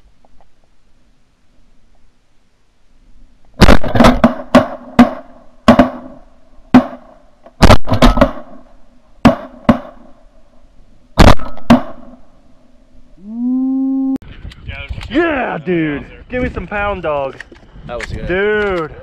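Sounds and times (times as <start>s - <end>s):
shotgun shots: 3.6s - 10.1s, 11.2s - 12.2s.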